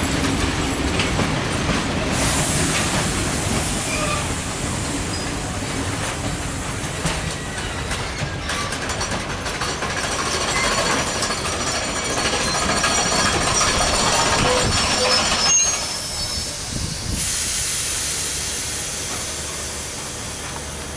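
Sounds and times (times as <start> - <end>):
train wheels rumbling on rails: 0.0 - 20.9
high-pitched wheel squeals: 12.1 - 16.7.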